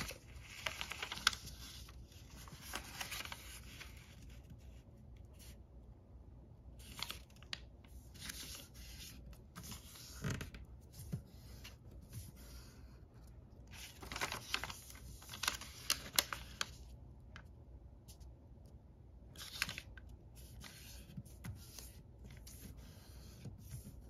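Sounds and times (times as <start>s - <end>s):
crisp paper crackles: 0.0s - 4.8s, 13.7s - 17.5s, 19.3s - 22.8s
paper rustling and crinkling: 0.0s - 5.6s, 6.8s - 18.3s, 19.3s - 24.0s.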